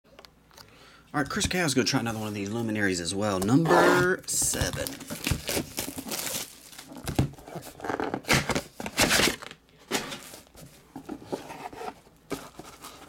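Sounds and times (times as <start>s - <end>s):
plastic shrink-wrap tearing and crinkling: 4.4s - 7.3s.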